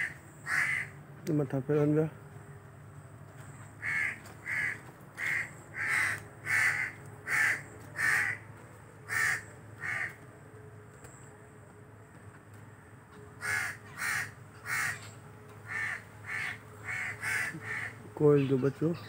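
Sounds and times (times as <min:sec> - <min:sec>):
crow cawing: 0:00.0 - 0:01.0, 0:03.8 - 0:08.5, 0:09.1 - 0:10.2, 0:13.4 - 0:18.0.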